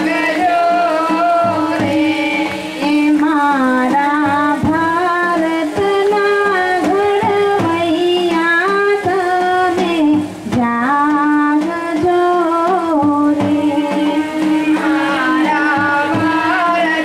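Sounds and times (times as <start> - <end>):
light percussion strokes: 0.0 - 17.0
man singing into microphone: 13.6 - 17.0.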